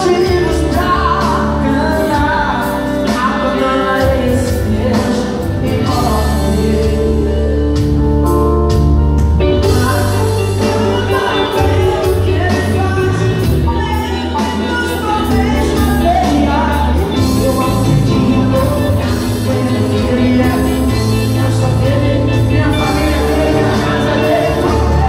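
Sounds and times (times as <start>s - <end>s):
man singing through microphone: 0.0s - 8.0s, 9.6s - 25.0s
amplified accompaniment with bass: 0.0s - 25.0s.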